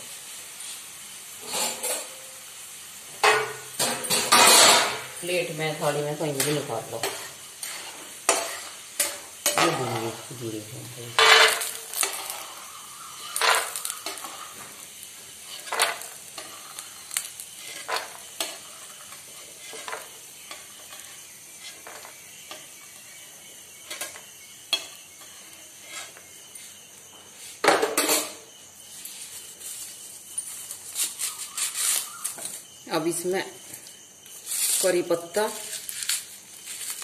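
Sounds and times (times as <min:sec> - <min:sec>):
hot oil sizzling: 0:00.0 - 0:37.0
metal ladle scraping pan: 0:03.2 - 0:05.2, 0:06.4 - 0:10.3, 0:11.1 - 0:14.8, 0:15.4 - 0:23.1.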